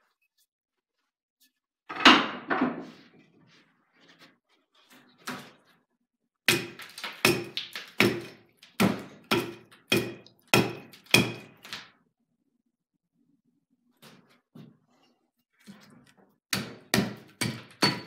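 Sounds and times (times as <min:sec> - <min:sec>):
axe chopping log: 0:06.5 - 0:11.6, 0:16.5 - 0:18.0.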